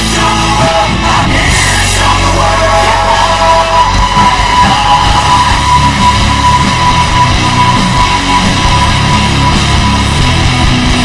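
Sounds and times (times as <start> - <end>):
hard rock music with heavy bass: 0.0 - 11.0
high held note: 1.4 - 11.0.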